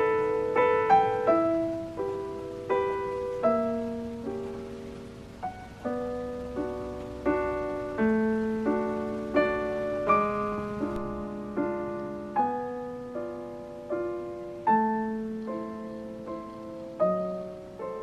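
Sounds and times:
soft piano music: 0.0s - 18.0s.

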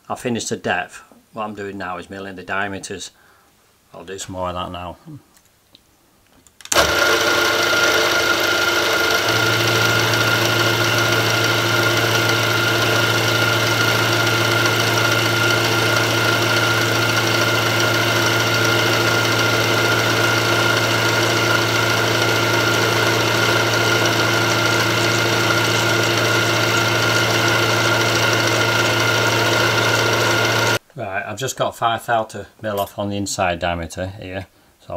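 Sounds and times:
milling machine whine: 6.7s - 30.8s
deep machine hum: 6.8s - 30.8s.

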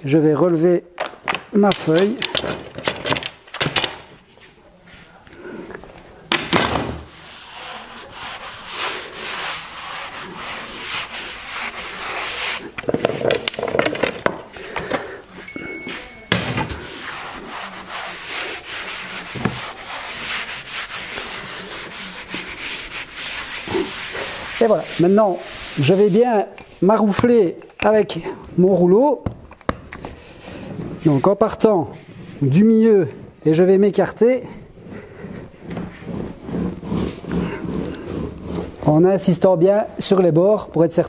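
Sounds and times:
hands rubbing across veneer: 7.0s - 14.8s, 16.7s - 27.9s, 29.8s - 39.5s.

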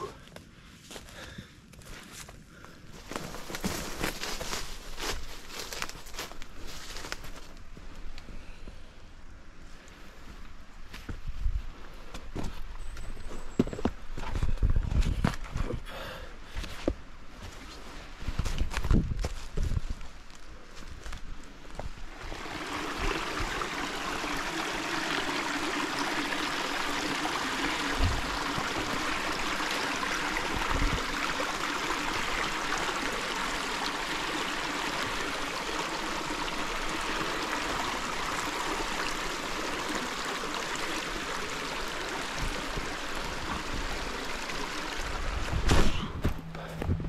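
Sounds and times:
stream running over rocks: 2.9s - 7.9s, 21.7s - 45.8s.

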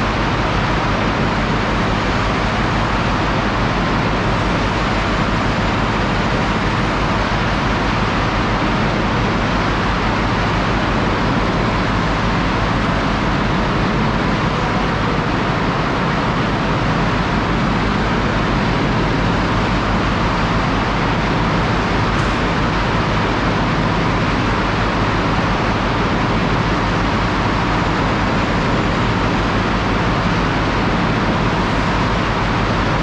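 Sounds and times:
conveyor belt running: 0.0s - 33.0s
loud machinery din: 0.0s - 33.0s
low rumble: 21.4s - 24.2s.

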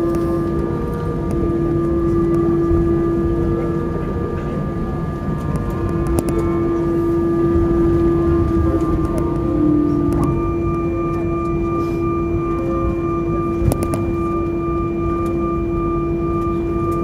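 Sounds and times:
aircraft engine hum: 0.0s - 17.0s.

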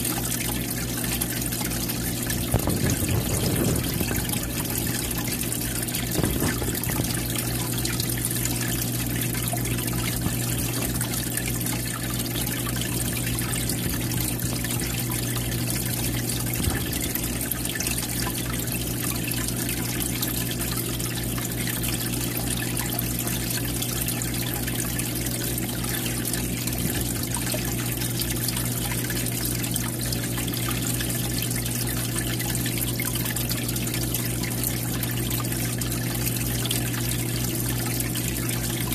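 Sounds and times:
water trickling into aquarium: 0.0s - 38.9s
low hum: 1.9s - 11.6s.

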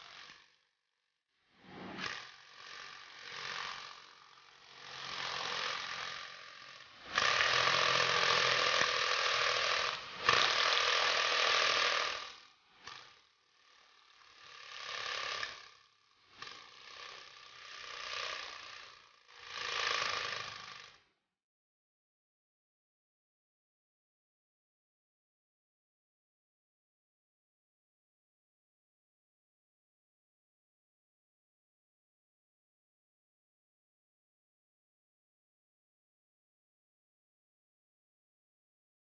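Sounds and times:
toy minigun rapid mechanical rattle: 0.0s - 0.6s, 1.9s - 21.1s
steady motor whine: 1.6s - 21.0s.

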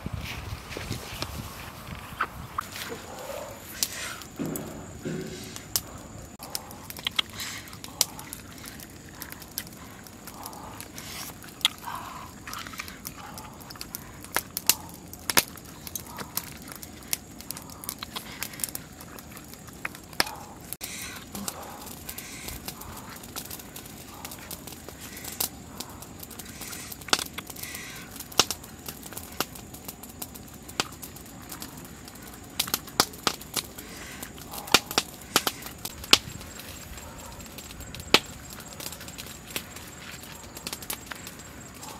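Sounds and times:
small clicks and crackles: 0.2s - 41.9s
sticks snapping: 3.7s - 29.5s.

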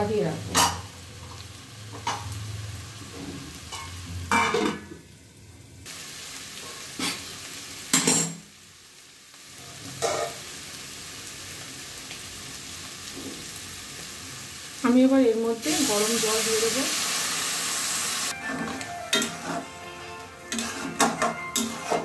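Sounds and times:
frying sizzle: 0.0s - 22.0s
spatula scraping a pan: 9.9s - 10.4s, 18.3s - 19.8s, 20.4s - 22.0s.

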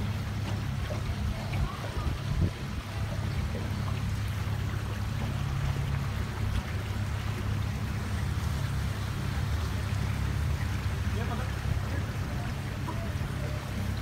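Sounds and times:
motorboat engine humming: 0.0s - 14.0s
water washing along hull: 0.0s - 14.0s.

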